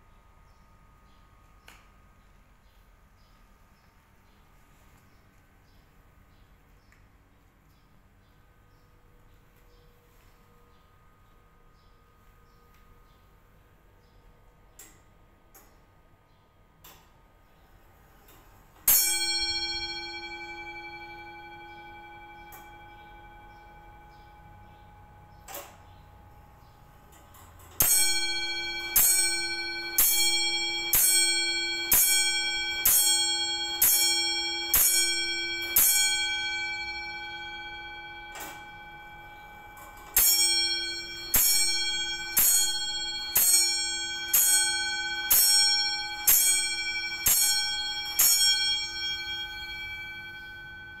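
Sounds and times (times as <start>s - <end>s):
clock hammer striking bell: 18.8s - 26.4s, 27.0s - 51.0s.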